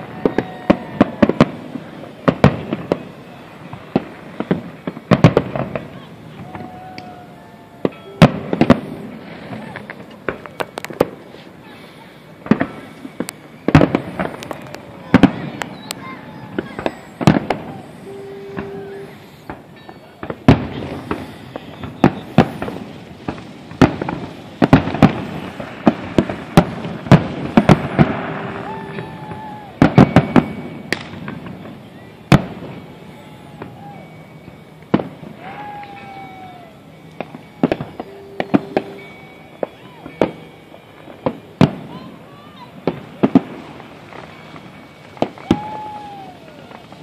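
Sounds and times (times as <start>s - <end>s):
fireworks bursting: 0.0s - 47.0s.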